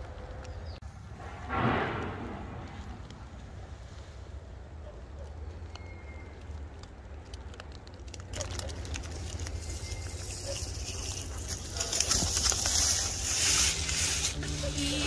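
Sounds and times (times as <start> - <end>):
wind rumbling on microphone: 0.0 - 4.5
rain pattering: 5.5 - 13.6.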